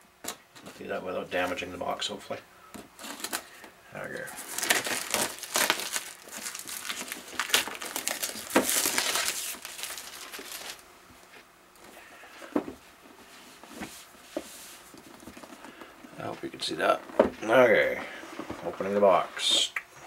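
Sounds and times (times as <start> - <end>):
plastic shrink-wrap crinkling and tearing: 3.0 - 3.6, 4.2 - 10.8.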